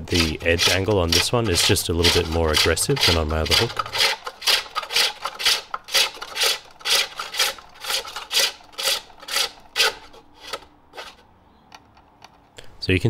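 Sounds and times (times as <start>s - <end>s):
hook tool scraping wood: 0.0s - 11.3s.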